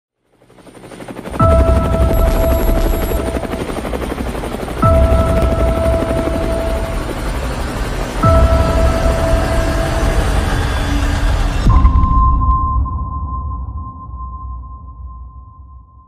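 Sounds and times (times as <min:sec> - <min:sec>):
helicopter rotor chopping: 0:00.2 - 0:11.7
held synth tone: 0:01.4 - 0:04.1.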